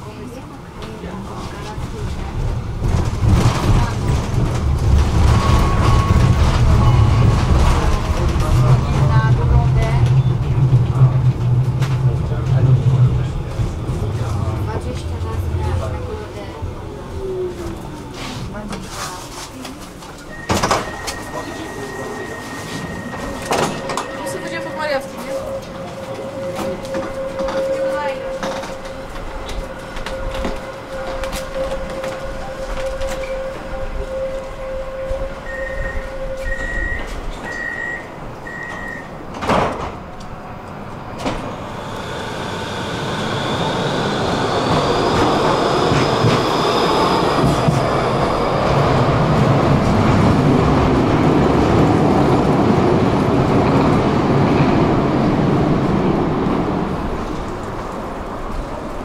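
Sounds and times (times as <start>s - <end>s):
tram doors shutting with thud: 0.0s - 59.0s
tram wheels rumbling: 0.0s - 59.0s
steady warning tone: 20.2s - 39.2s
short high beeps: 20.3s - 25.6s, 35.5s - 39.1s.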